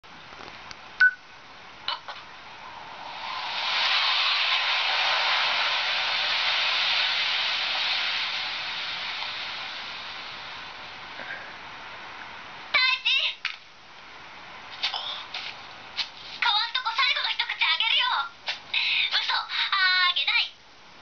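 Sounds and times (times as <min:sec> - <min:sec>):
short beep: 0:01.0 - 0:01.2
rushing hiss: 0:02.4 - 0:12.7.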